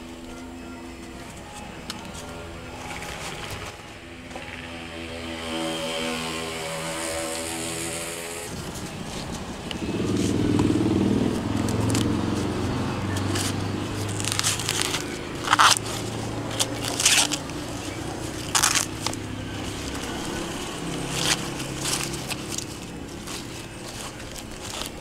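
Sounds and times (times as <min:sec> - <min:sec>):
corn husks crackling and tearing: 0:08.5 - 0:25.0.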